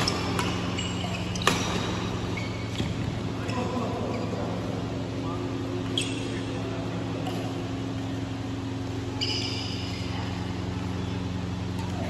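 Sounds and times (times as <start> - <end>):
racket hitting shuttlecock: 0.0 - 3.2
low machine hum: 0.0 - 12.0.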